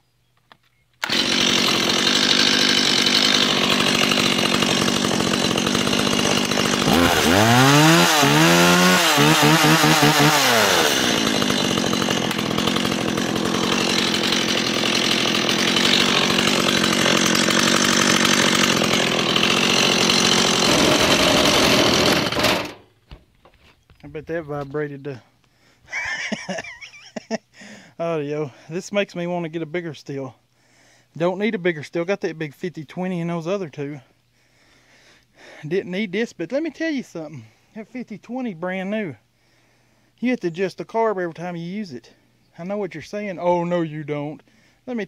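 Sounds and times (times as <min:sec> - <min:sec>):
chainsaw starting and revving: 0:01.0 - 0:22.8.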